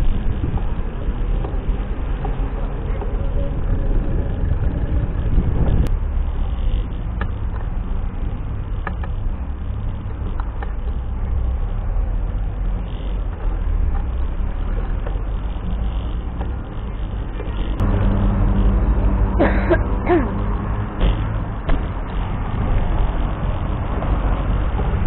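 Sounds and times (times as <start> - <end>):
wind buffeting microphone: 0.0 - 8.6
bicycle tyre and road noise: 0.0 - 25.0.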